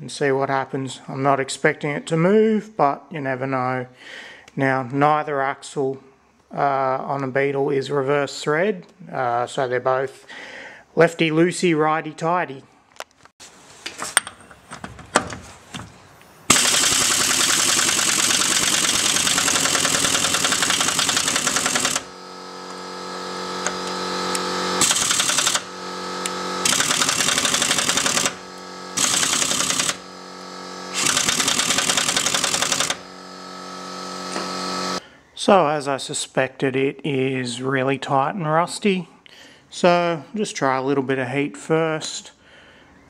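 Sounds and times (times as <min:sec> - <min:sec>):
steady hum: 0:14.1 - 0:35.1
impact wrench hammering: 0:16.5 - 0:35.0.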